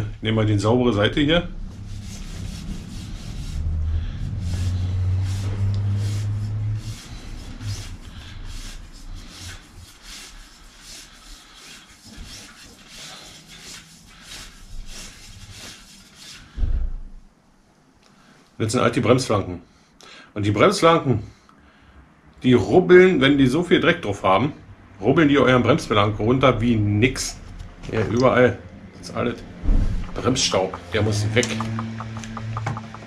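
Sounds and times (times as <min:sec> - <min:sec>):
low hum: 0:00.0 - 0:09.9, 0:27.4 - 0:33.0
cloth rubbing bicycle rim: 0:00.9 - 0:17.2.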